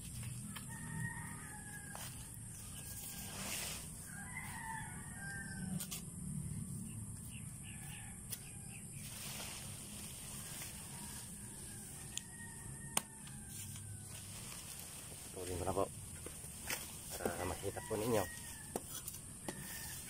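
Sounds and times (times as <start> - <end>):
dry leaves rustling and crackling: 0.0 - 6.1, 8.3 - 12.4, 13.0 - 20.0
rooster crowing faintly: 16.7 - 20.0.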